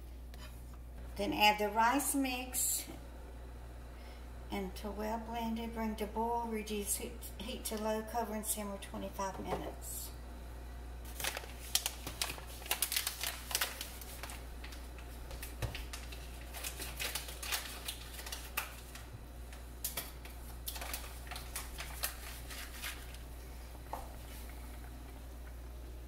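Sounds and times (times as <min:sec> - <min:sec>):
low steady hum: 0:00.0 - 0:26.0
boiling bubbles popping: 0:11.0 - 0:26.0.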